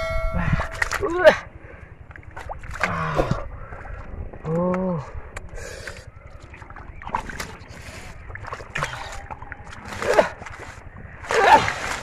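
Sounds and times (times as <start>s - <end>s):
hands splashing through muddy water: 2.1s - 3.5s, 5.8s - 12.0s.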